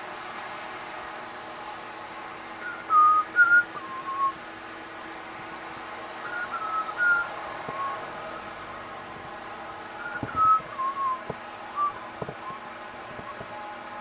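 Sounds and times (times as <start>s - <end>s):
faint hum: 0.0s - 14.0s
steady hiss: 0.0s - 14.0s
person whistling a tune: 2.6s - 4.4s, 6.2s - 8.0s, 10.0s - 13.5s.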